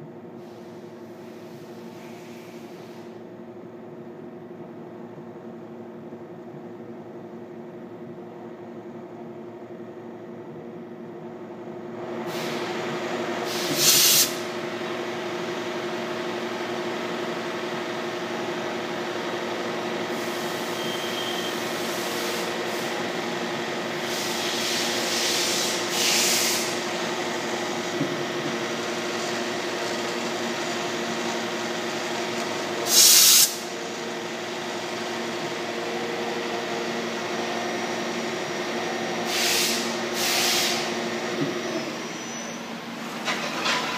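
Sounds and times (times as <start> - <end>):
milling machine spindle hum: 14.6 - 32.9.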